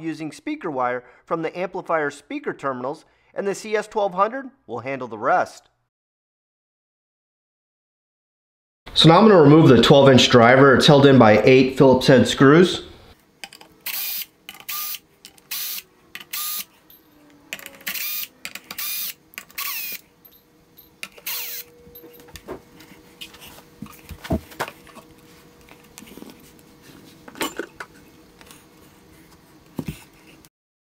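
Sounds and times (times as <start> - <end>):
drill-driver removing screws: 13.8 - 16.7, 17.5 - 20.0, 21.0 - 21.7.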